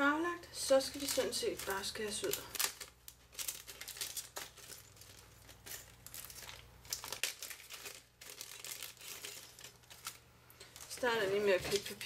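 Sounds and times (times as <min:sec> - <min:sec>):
paper rustling and crinkling: 0:00.9 - 0:12.0.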